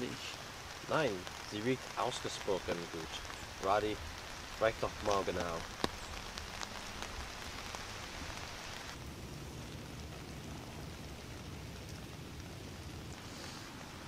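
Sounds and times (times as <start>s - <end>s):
light rain on dead leaves: 0.0s - 14.0s.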